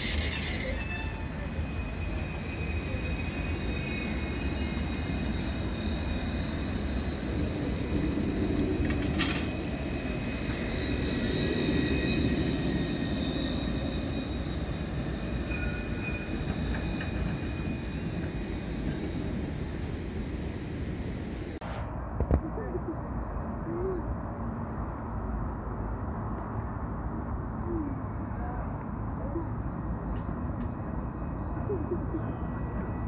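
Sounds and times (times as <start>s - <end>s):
tram rolling past: 0.0s - 33.0s.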